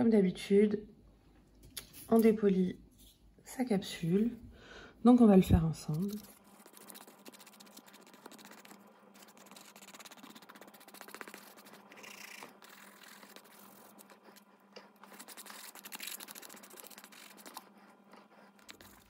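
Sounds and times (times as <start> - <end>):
nail file scratching: 5.8 - 19.0.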